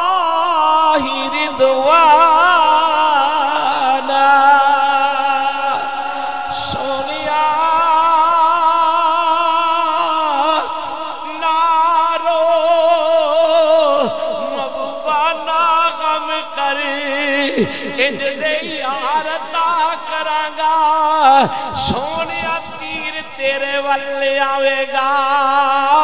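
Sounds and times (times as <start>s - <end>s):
man chanting melodically: 0.0s - 26.0s
short breaths: 21.5s - 21.8s.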